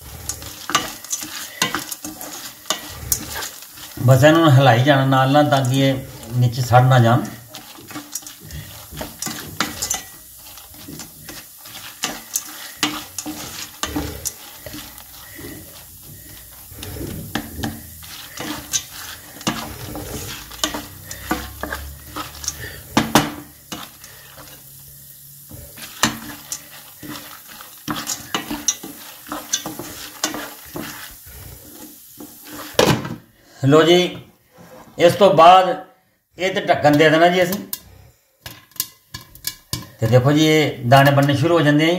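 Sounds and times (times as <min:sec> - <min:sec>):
kernels rattling in a pan: 0:00.0 - 0:33.2, 0:36.7 - 0:41.9.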